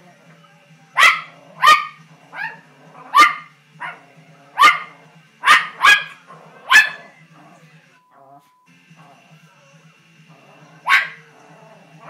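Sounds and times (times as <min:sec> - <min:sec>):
dog barking: 0:01.0 - 0:07.2, 0:10.8 - 0:11.3.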